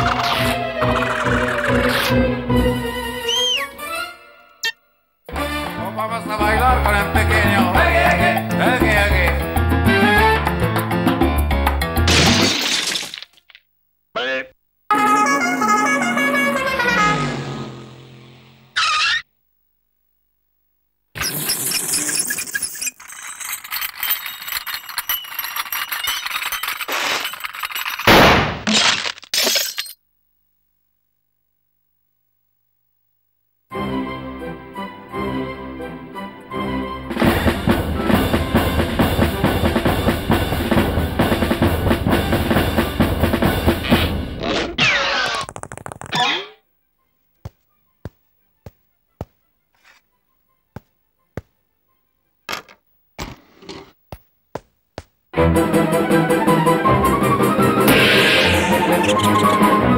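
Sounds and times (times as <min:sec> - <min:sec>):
cartoon glass cracking: 0:12.1 - 0:13.6, 0:21.2 - 0:30.0, 0:44.7 - 0:46.6
cartoon music beat: 0:14.9 - 0:17.2
cartoon crashing bursts: 0:14.9 - 0:19.3, 0:28.0 - 0:29.1, 0:43.6 - 0:46.6, 0:57.8 - 0:59.7.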